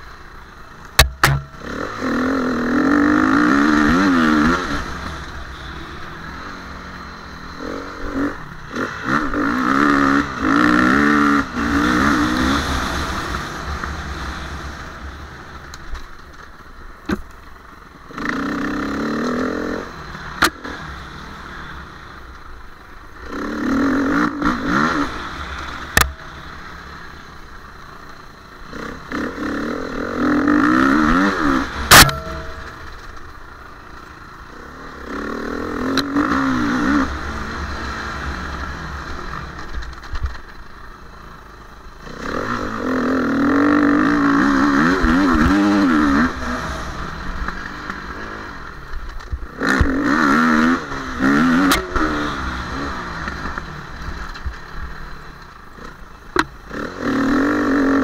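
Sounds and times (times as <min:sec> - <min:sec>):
motorcycle engine revving: 0:00.0 - 0:58.0
sharp knocks: 0:01.0 - 0:01.5.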